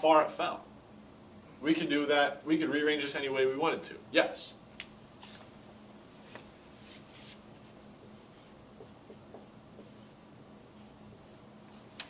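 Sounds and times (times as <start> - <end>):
marker scratching on whiteboard: 6.8 - 11.5.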